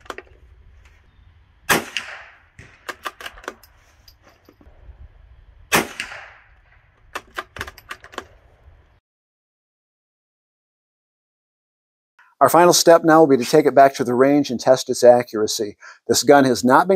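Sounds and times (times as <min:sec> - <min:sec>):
rifle shots echoing: 0:01.6 - 0:03.6, 0:05.7 - 0:07.6
rifle bolt metallic clicks: 0:02.0 - 0:04.6, 0:07.0 - 0:08.4.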